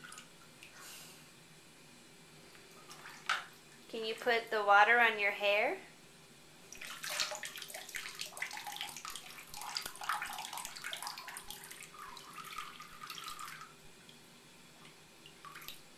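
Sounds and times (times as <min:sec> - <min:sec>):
water trickling and splashing: 0:02.5 - 0:03.9, 0:06.7 - 0:15.9.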